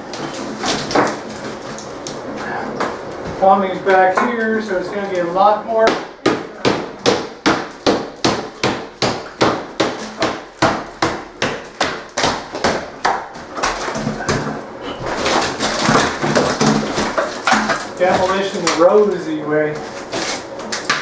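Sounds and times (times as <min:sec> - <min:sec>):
wall material crackling and crumbling: 0:00.0 - 0:05.9, 0:07.2 - 0:21.0
hammer striking wall: 0:05.8 - 0:18.9.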